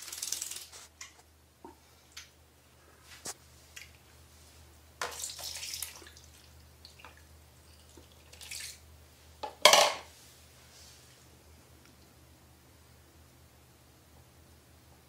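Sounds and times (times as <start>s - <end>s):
water splashing in a basin: 0.0s - 0.7s, 5.0s - 8.8s.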